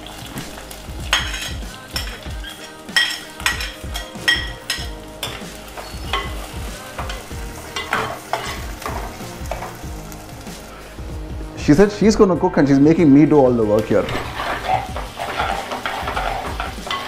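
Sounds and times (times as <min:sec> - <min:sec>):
onions sizzling in hot oil: 0:00.0 - 0:11.6, 0:13.4 - 0:17.0
steel ladle scraping and clinking: 0:07.0 - 0:09.8, 0:13.9 - 0:17.0.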